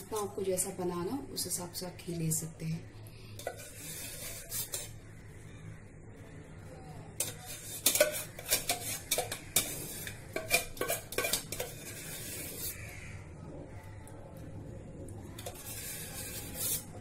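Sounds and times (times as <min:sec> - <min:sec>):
faint low hum: 0:00.0 - 0:17.0
steel spoon clinking against pan: 0:07.2 - 0:11.9.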